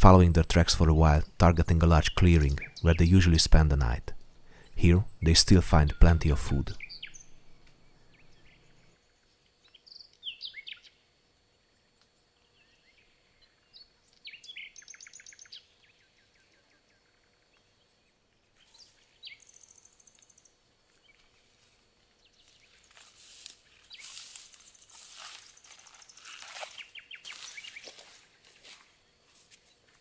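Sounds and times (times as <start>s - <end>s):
birdsong chirps and trills: 1.0s - 11.1s, 11.8s - 21.4s, 23.7s - 24.4s, 25.3s - 28.2s
footsteps through dry grass: 21.2s - 30.0s.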